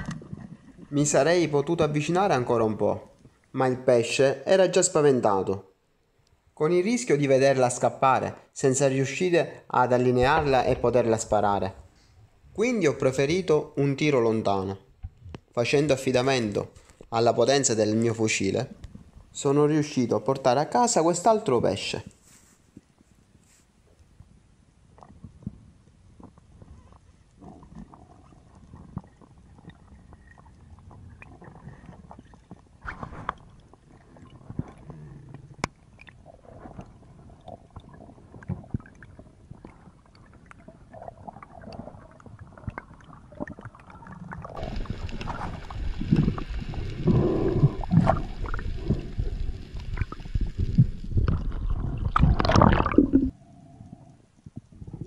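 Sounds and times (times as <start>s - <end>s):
underwater water noise: 0.0s - 3.5s, 24.8s - 55.0s
rushing water: 42.8s - 53.3s.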